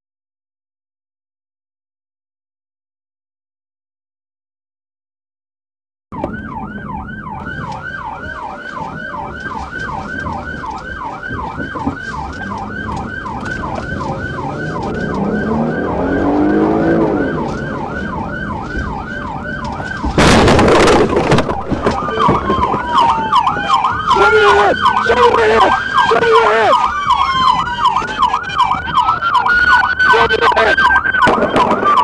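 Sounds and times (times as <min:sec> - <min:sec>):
police siren yelping: 0:06.1 - 0:32.0
car engine accelerating: 0:11.7 - 0:21.1.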